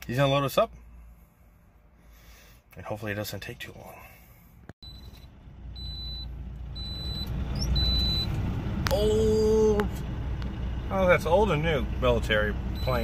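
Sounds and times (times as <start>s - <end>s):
high electronic beeping: 12.8s - 13.0s.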